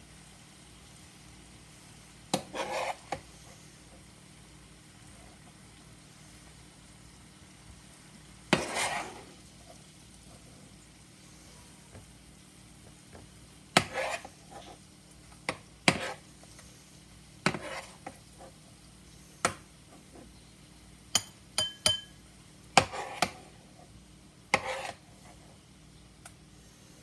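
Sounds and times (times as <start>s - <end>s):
metal spoon scraping frying pan: 2.4s - 3.2s, 8.5s - 9.4s, 13.8s - 14.7s, 15.9s - 16.2s, 17.5s - 18.2s, 22.8s - 23.6s, 24.5s - 25.0s.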